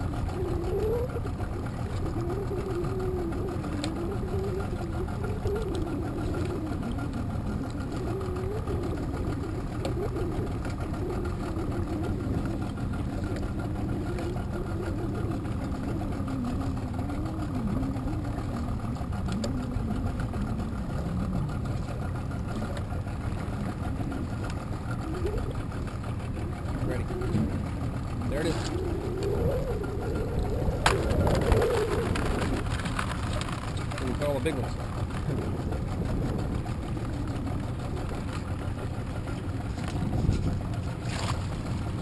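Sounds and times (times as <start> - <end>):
boat motor idling: 0.0 - 42.0.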